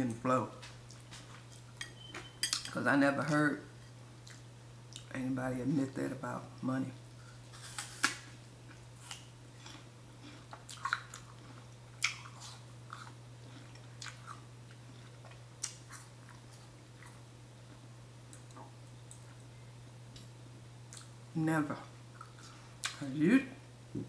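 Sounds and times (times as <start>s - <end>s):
person chewing food: 4.2s - 5.2s, 7.2s - 19.5s, 20.9s - 21.2s, 22.1s - 23.0s.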